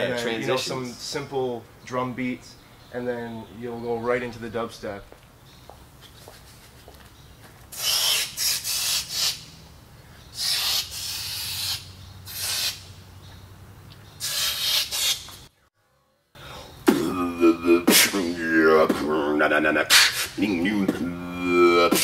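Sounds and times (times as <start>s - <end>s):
beatboxing: 7.7s - 9.4s, 10.4s - 12.8s, 16.8s - 22.0s
spray can hissing: 7.7s - 9.5s, 10.4s - 12.9s, 14.2s - 15.4s.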